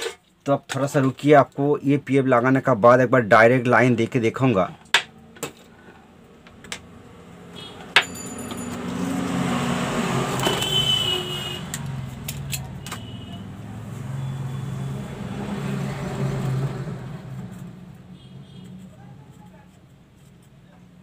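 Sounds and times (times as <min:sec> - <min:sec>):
vehicle engine passing by: 0:06.9 - 0:18.2.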